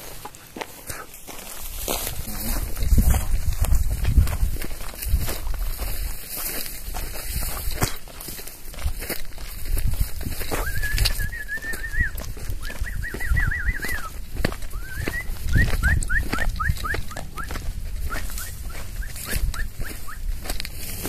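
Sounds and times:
footsteps crunching through dry grass: 0.0s - 21.0s
person whistling: 10.6s - 17.5s, 18.1s - 20.2s.

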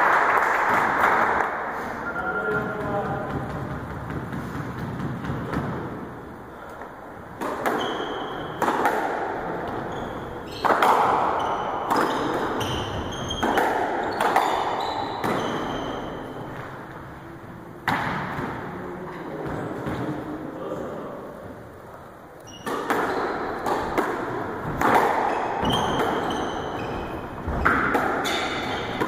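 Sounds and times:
squash ball cracking off rackets and walls: 2.5s - 6.2s, 7.3s - 16.7s, 17.8s - 18.7s, 22.5s - 29.0s
shoes squeaking on wooden floor: 7.8s - 8.6s, 9.6s - 10.7s, 11.3s - 16.9s, 25.2s - 29.0s.

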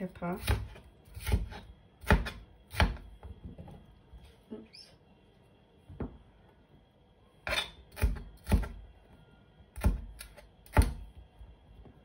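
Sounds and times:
knife chopping on board: 0.3s - 3.3s.

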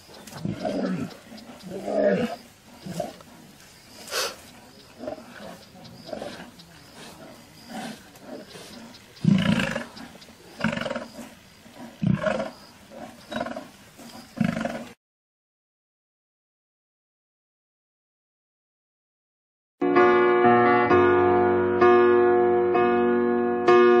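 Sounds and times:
lions snarling and growling: 0.0s - 15.0s.

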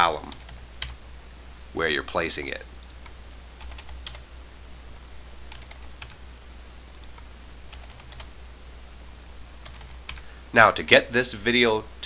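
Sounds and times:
keyboard keys clicking: 2.8s - 4.2s, 5.5s - 6.2s, 6.9s - 8.3s, 9.6s - 10.2s.

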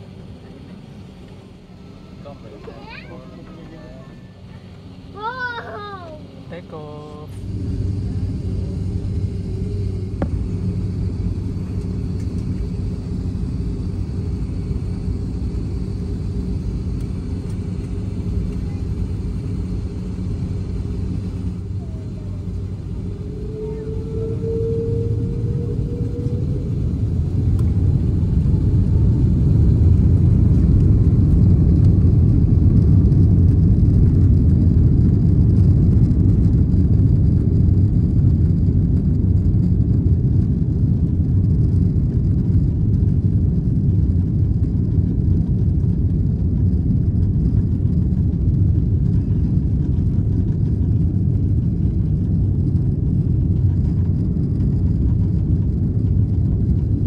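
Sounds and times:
jet engines spooling up: 6.2s - 42.6s.

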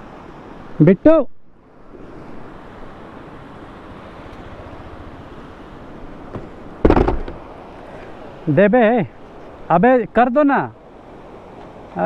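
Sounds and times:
loud thump: 6.3s - 7.4s.

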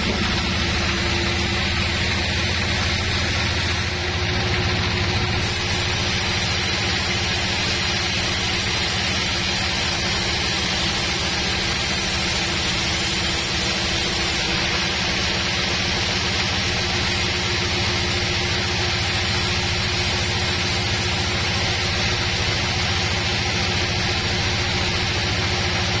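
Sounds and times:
band saw hum: 0.0s - 26.0s
engine throb: 0.0s - 26.0s
broad hiss: 5.4s - 14.5s.

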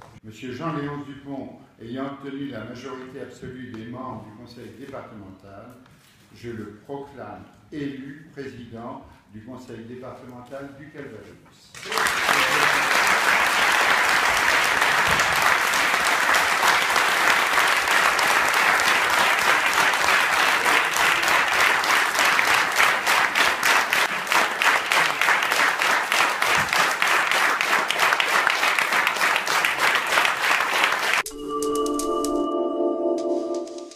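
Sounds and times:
crowd applauding: 11.8s - 31.3s
short musical jingle: 31.2s - 33.9s.

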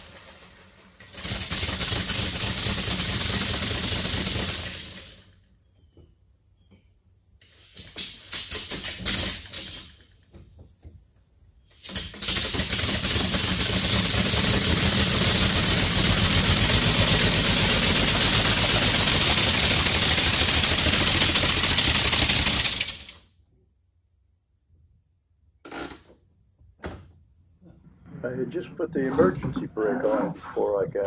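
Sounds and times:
engine exhaust chuffing: 14.1s - 22.5s.

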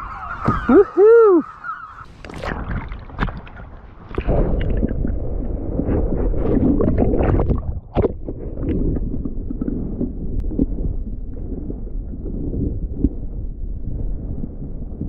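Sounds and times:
water splashing: 0.0s - 11.6s
underwater rumble and gurgle: 0.0s - 15.0s.

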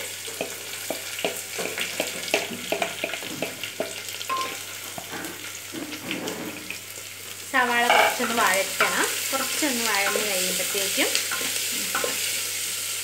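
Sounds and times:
onions sizzling in hot oil: 0.0s - 13.0s.

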